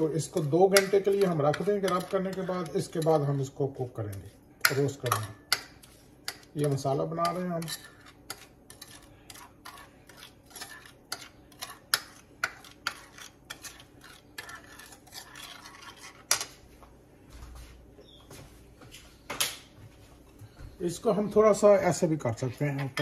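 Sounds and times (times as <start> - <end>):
metal spoon scraping ceramic plate: 0.3 - 3.5, 4.2 - 16.5.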